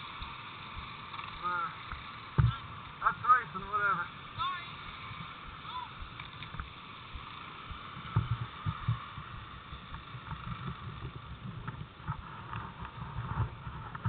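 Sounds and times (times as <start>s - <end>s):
wind on microphone: 7.7s - 14.0s.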